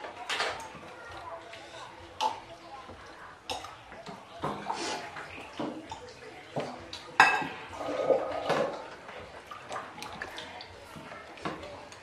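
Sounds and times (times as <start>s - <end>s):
water splashing in a bowl: 0.0s - 12.0s
plates and cutlery clinking: 3.5s - 9.6s.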